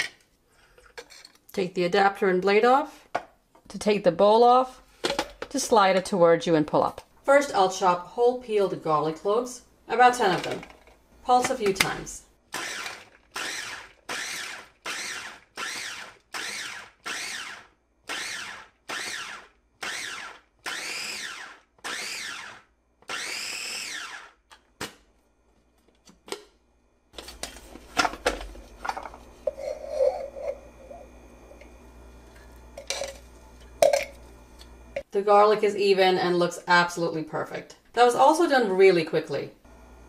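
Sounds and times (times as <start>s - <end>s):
food chopper motor pulsing: 12.5s - 24.4s, 28.2s - 35.1s.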